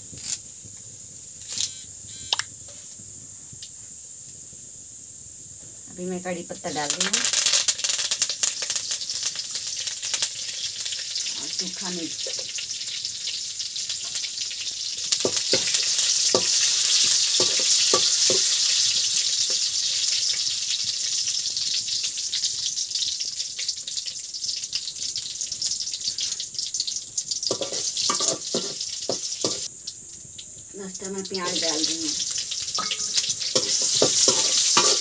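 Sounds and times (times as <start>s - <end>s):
spices sizzling in hot oil: 0.0s - 35.0s
metal spoon scraping pan: 27.5s - 29.7s, 31.5s - 35.0s.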